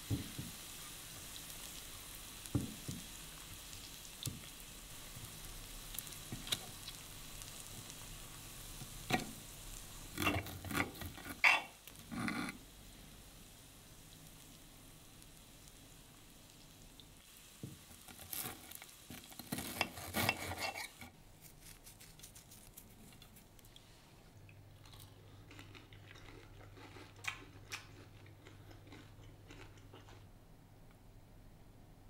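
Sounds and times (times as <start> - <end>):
knife and fork cutting steak: 19.5 - 21.0
chewing: 24.5 - 30.3.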